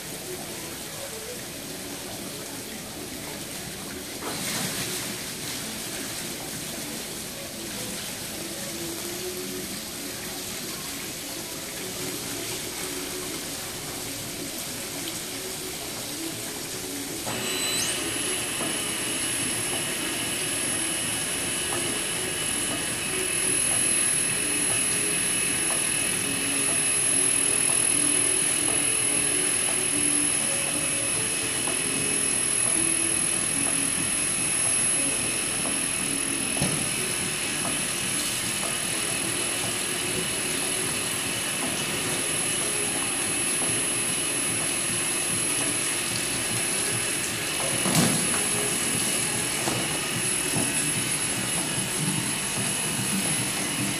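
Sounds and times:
pump running: 0:00.0 - 0:53.9
high-pitched motor whine: 0:15.1 - 0:53.9.

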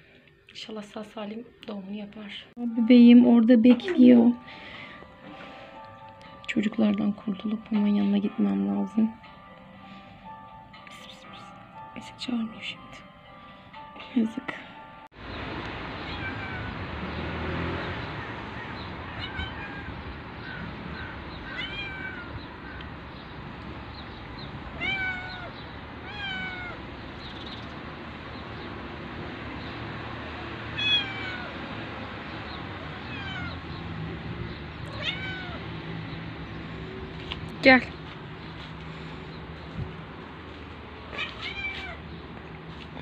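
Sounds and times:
cat meowing: 0:16.0 - 0:16.8, 0:19.1 - 0:20.0, 0:21.4 - 0:22.4, 0:24.8 - 0:26.8, 0:30.8 - 0:31.6, 0:32.8 - 0:33.6, 0:34.8 - 0:35.6, 0:41.1 - 0:42.0.

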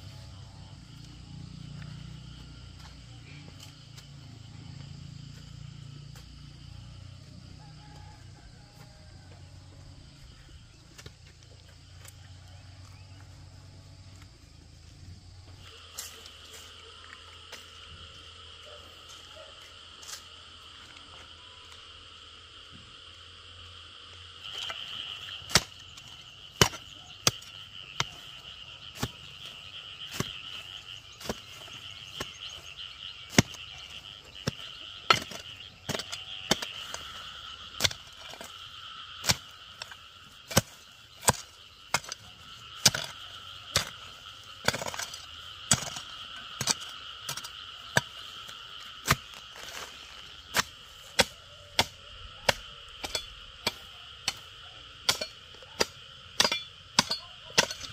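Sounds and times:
hoe chopping into stony soil: 0:26.5 - 0:28.2, 0:33.3 - 0:33.6, 0:34.5 - 0:37.1, 0:39.2 - 0:48.2, 0:49.0 - 0:57.9.

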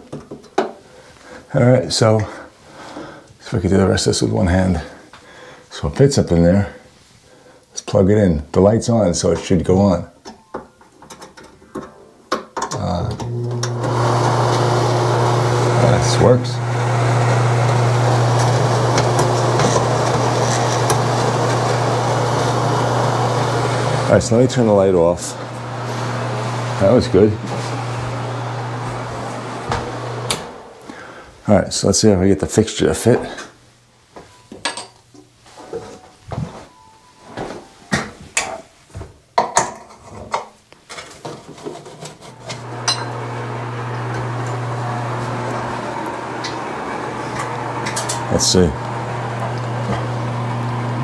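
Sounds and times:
exhaust fan motor hum: 0:13.2 - 0:31.2.

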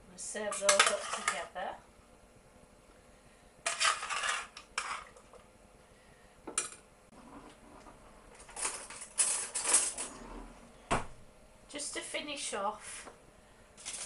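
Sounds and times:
metal utensils clattering on pans: 0:00.4 - 0:01.5, 0:03.6 - 0:05.3, 0:08.4 - 0:10.2.

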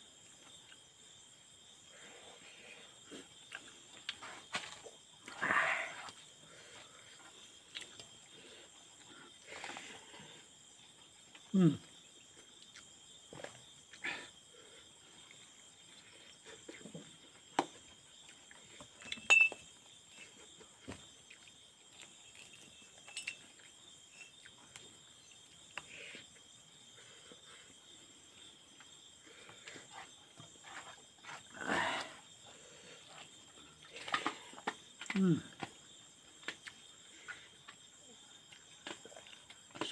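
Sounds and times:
high insect drone: 0:00.0 - 0:39.9
man chewing and smacking lips: 0:03.0 - 0:05.4, 0:07.1 - 0:09.8, 0:10.8 - 0:14.0, 0:15.0 - 0:19.2, 0:19.8 - 0:26.6, 0:38.4 - 0:39.9
clink on steel plate: 0:19.1 - 0:19.6, 0:23.1 - 0:23.4.

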